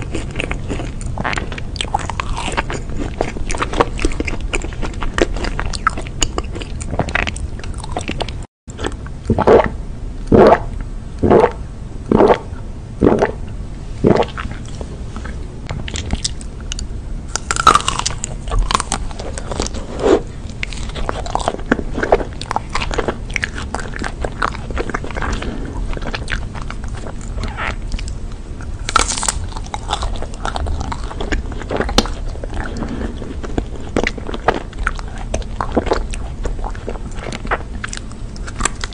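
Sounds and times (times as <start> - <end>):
chewing: 0.0 - 9.1, 14.2 - 38.9
crunchy bites: 15.9 - 19.9, 20.5 - 38.9.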